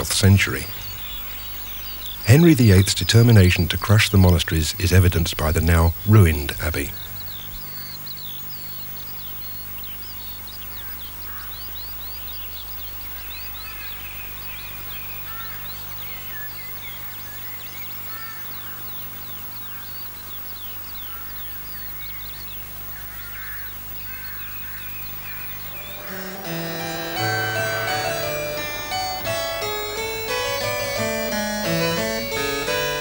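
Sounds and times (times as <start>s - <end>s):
steady low hum: 0.0s - 11.5s
birds chirping: 0.0s - 33.0s
harpsichord music: 2.2s - 6.9s, 25.5s - 33.0s.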